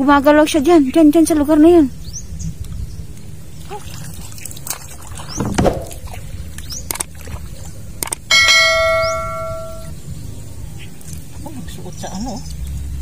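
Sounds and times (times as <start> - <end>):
water sloshing against canoe: 3.5 - 8.0
light knocks on boat: 5.4 - 6.1
bright ringing ding: 8.3 - 10.0
bird chirps: 8.3 - 11.0.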